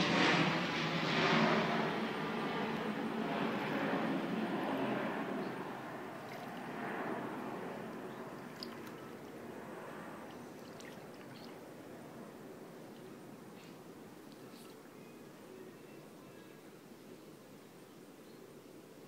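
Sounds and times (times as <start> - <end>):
pool water lapping: 5.4 - 15.0
water drips: 7.8 - 9.4, 10.2 - 11.6.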